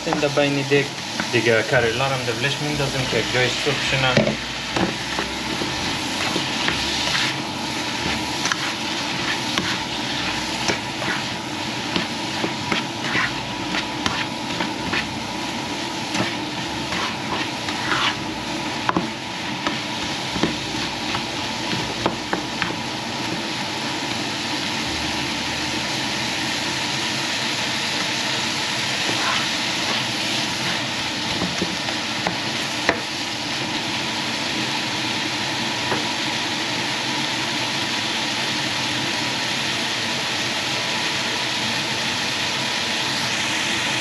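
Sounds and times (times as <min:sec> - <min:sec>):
spatula scraping and knocking pan: 0:00.0 - 0:24.2, 0:27.9 - 0:33.9
vegetables sizzling in hot oil: 0:00.0 - 0:44.0.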